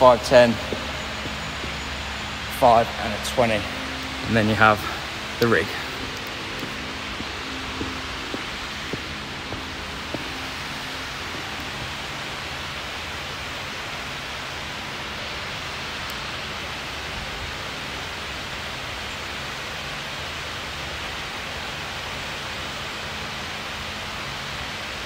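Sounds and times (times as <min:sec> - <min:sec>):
faint low hum: 0:00.0 - 0:14.0
electric fans rushing: 0:00.0 - 0:24.9.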